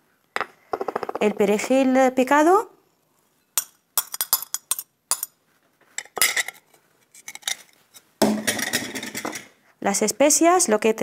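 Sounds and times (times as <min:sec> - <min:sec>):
metal spoon clinking on glass dish: 0:03.6 - 0:05.4.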